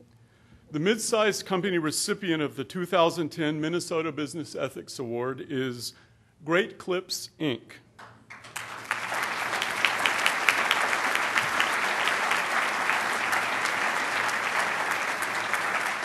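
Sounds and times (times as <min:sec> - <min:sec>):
audience applause: 0:08.3 - 0:16.0.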